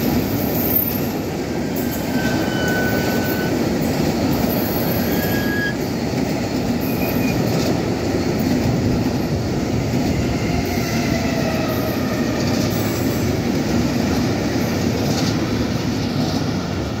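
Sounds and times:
train wheels rumbling on rails: 0.0 - 17.0
faint thin squeals: 1.8 - 3.6, 4.8 - 5.8.

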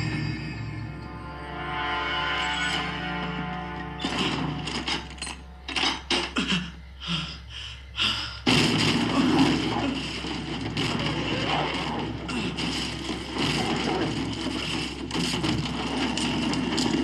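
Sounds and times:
explosion and rushing fire: 8.5 - 17.0.

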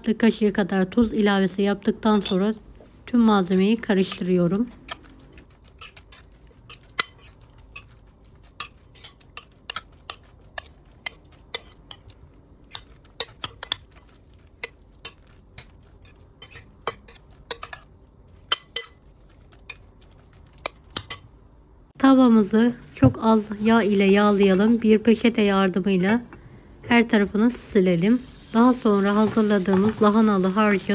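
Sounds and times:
metal spoon clinking glass bowl: 18.5 - 19.0.

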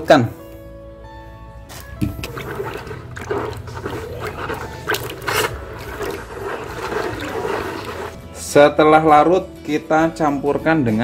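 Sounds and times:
water sloshing in plastic bucket: 1.7 - 8.2.

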